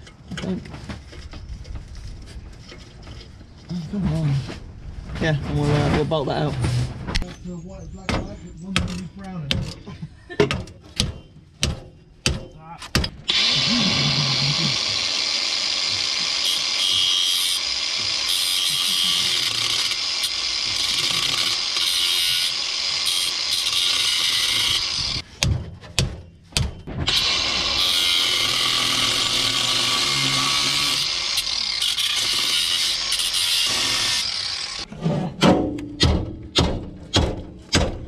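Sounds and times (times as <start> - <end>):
power tool running: 13.2 - 25.2, 27.0 - 34.9.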